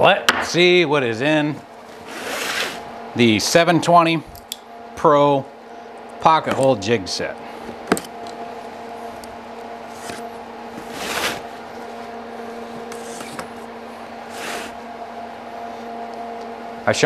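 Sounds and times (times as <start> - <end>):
steady low hum: 0.0 - 17.0
blade slitting packing tape: 10.9 - 11.4.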